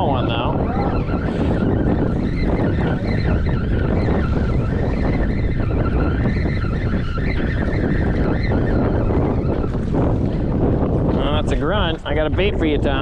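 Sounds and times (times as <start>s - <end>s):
wind buffeting microphone: 0.0s - 13.0s
fishing reel whirring: 0.6s - 10.6s.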